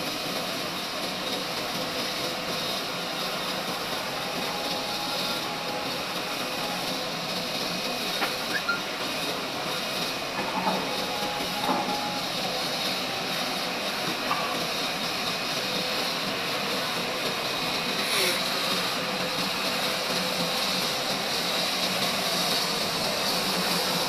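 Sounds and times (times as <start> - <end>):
sawmill mechanical hum: 0.0 - 24.0.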